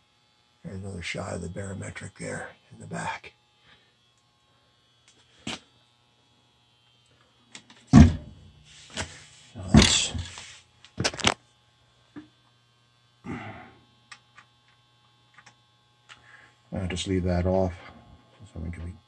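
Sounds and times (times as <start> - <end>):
low electrical hum: 0.0 - 19.0
knocks and clunks of handling: 8.0 - 8.3.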